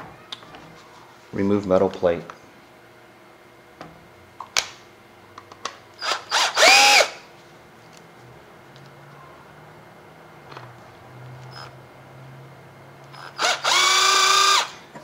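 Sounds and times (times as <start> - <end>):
cordless screwdriver motor whine: 6.0 - 7.2, 13.1 - 14.7.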